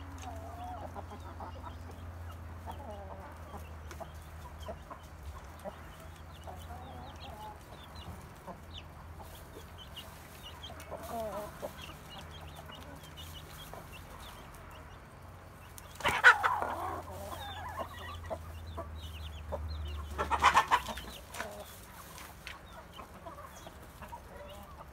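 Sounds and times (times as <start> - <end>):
hens clucking: 0.0 - 24.9
loud hen calls: 16.0 - 18.9, 19.9 - 21.6.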